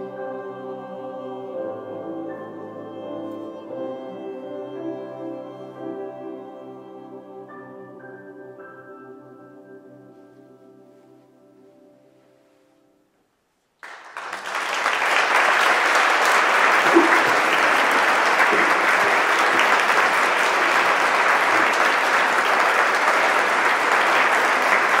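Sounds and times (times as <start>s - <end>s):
audience applauding: 13.8s - 25.0s.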